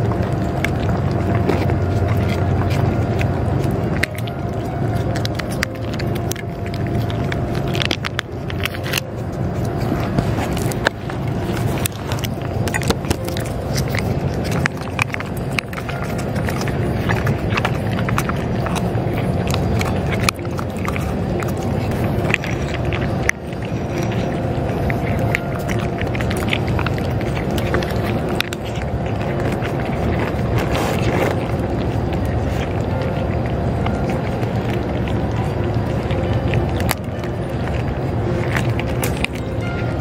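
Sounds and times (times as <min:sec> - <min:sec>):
cats chewing and licking food: 0:00.0 - 0:40.0
steady low rumble: 0:00.0 - 0:40.0.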